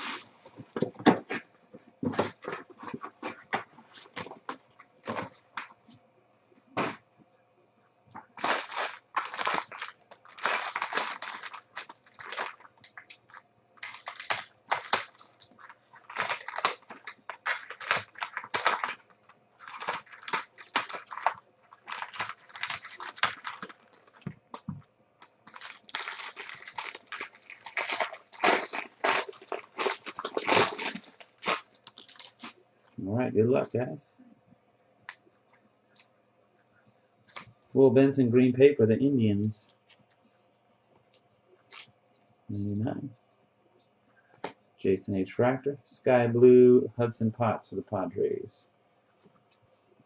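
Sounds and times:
plastic wrappers crinkling: 8.2 - 32.6, 41.7 - 41.9
scissors cutting plastic: 8.4 - 19.0, 25.4 - 32.5.

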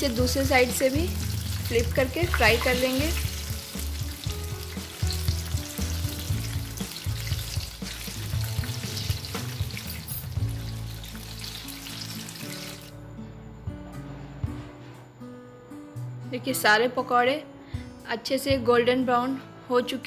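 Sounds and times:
oil sizzling and bubbling: 0.0 - 13.0.

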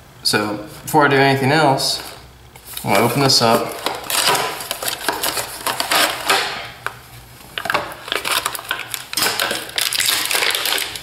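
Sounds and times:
plastic blister tray crackling: 2.6 - 11.0
cardboard box tearing: 2.9 - 6.6.

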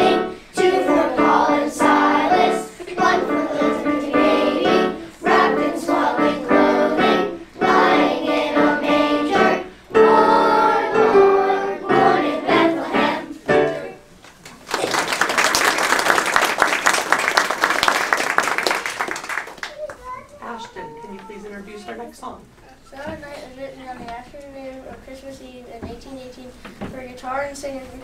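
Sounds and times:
children's choir singing: 0.0 - 14.0
piano accompaniment: 0.0 - 14.2
audience applause: 14.4 - 20.0.

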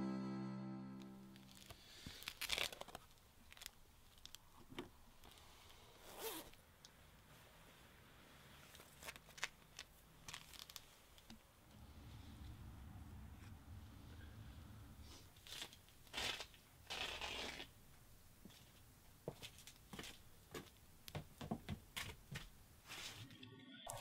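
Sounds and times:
paper crinkling: 1.4 - 4.8, 8.7 - 11.4
clothing rustle: 7.2 - 11.5, 22.0 - 23.3.

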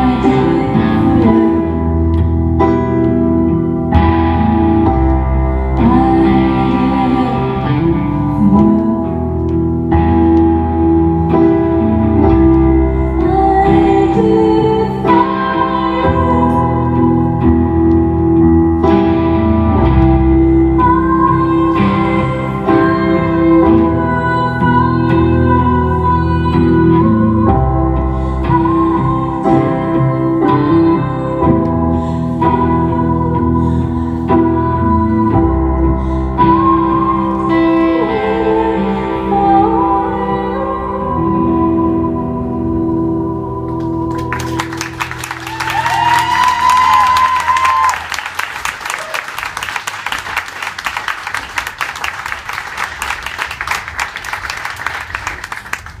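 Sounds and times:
keyboard playing piano chords: 0.0 - 54.1
audience applauding: 43.8 - 56.0.

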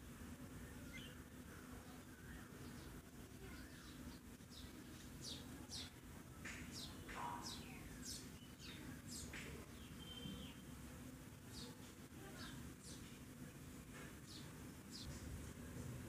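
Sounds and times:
faint bird chirps: 0.6 - 6.0, 6.6 - 10.8, 11.5 - 13.2.

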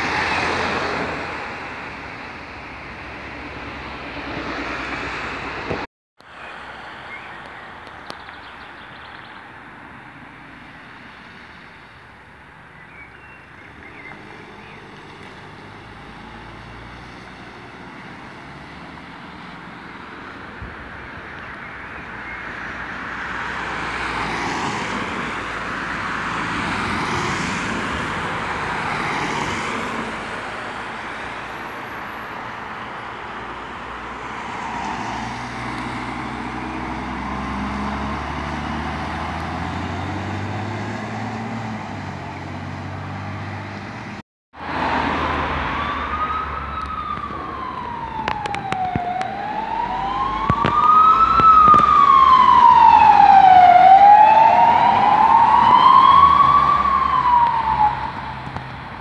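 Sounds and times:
diesel engine passing: 0.0 - 5.9, 13.7 - 21.0, 22.5 - 59.0
siren wailing: 45.3 - 58.5
faint wavering siren: 45.6 - 58.4.

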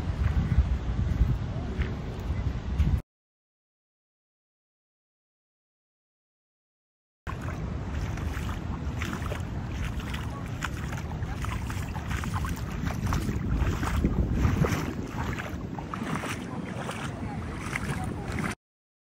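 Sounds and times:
wind buffeting microphone: 0.0 - 3.0, 7.3 - 18.6
water lapping at shore: 7.3 - 18.6.

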